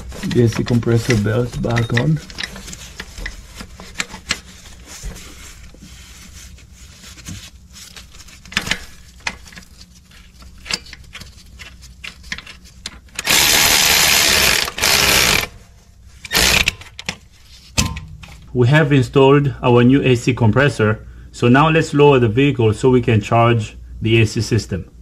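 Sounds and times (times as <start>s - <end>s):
hand tools clicking and knocking: 0.0s - 4.4s
power tool bursts: 13.2s - 15.5s, 16.3s - 16.8s.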